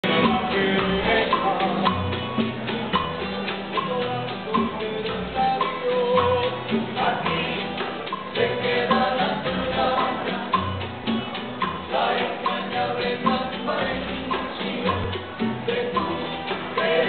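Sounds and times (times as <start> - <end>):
person singing: 0.0 - 2.4, 3.8 - 10.8
acoustic guitars strumming: 0.0 - 17.0
bass notes: 0.0 - 17.0.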